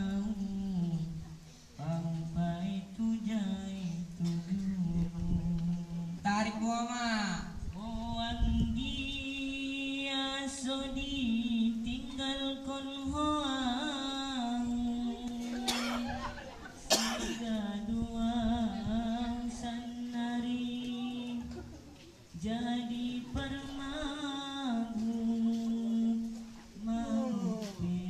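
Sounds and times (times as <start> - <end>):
person singing held notes: 18.7 - 28.0.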